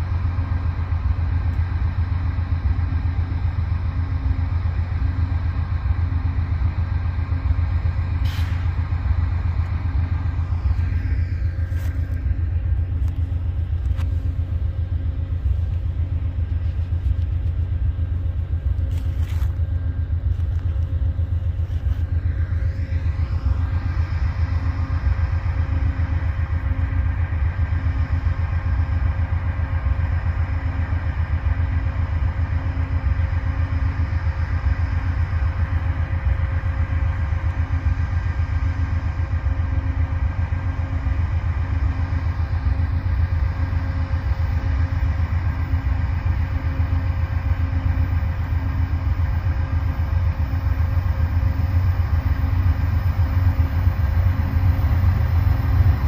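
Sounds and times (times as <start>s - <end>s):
diesel locomotive rumble: 0.0s - 56.0s.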